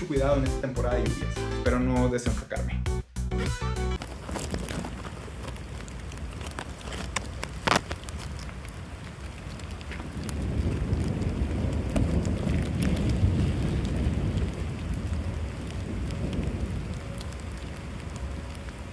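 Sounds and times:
rain falling: 4.0 - 18.9
skateboard wheels rolling on wet pavement: 4.0 - 18.9.

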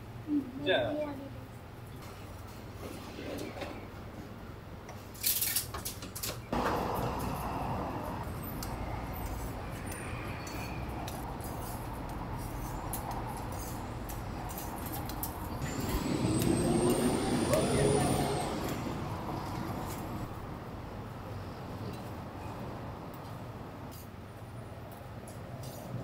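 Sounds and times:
rising whine: 6.6 - 11.0, 15.6 - 20.4.

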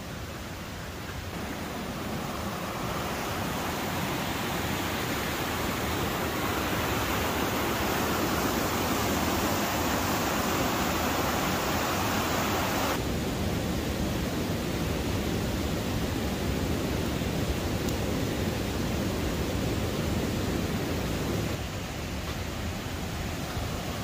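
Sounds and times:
creek rushing over rocks: 0.0 - 13.2.

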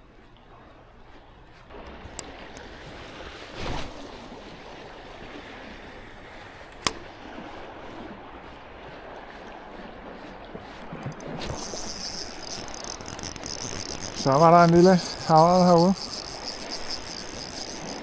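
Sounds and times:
steady water noise: 0.0 - 18.0
sharp clicks: 10.8 - 18.0.

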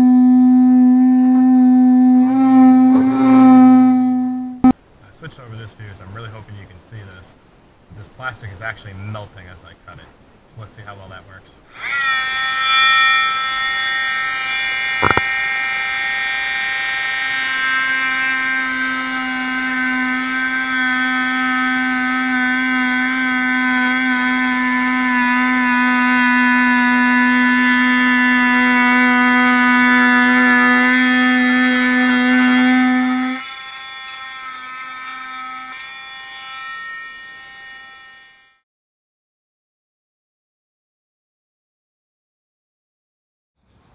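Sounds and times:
lower hum: 0.0 - 4.8, 12.6 - 38.2
multi-tool high whine: 0.0 - 4.8, 11.7 - 38.6.

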